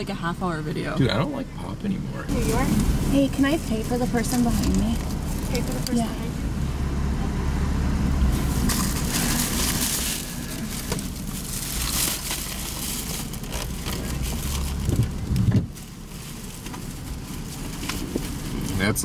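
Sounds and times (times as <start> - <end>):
car engine idling: 0.0 - 19.0
plastic bags crinkling: 8.4 - 18.7.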